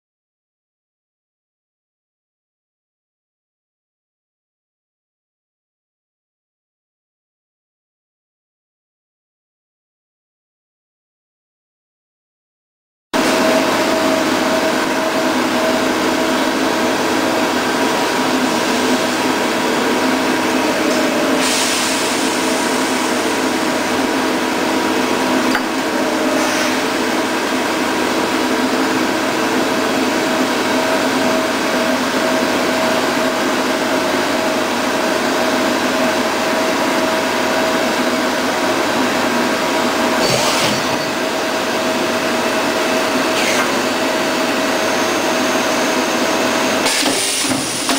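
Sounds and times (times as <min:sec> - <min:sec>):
machine humming and whining: 0:13.2 - 0:47.9.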